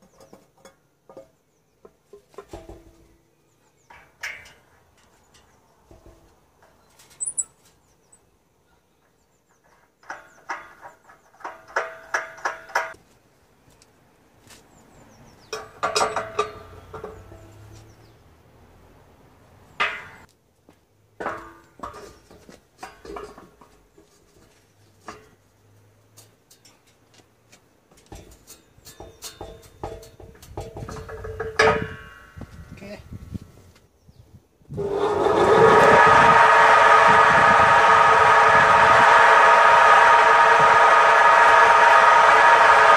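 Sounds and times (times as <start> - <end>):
metal clank: 3.8 - 7.6, 15.5 - 17.5, 19.8 - 20.3, 21.2 - 22.2.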